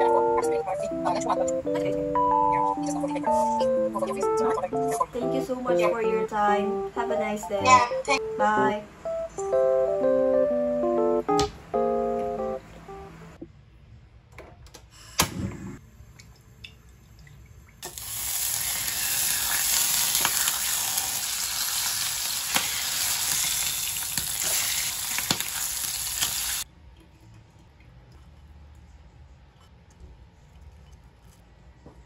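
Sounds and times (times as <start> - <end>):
bacon sizzling in frying pan: 17.8 - 26.6.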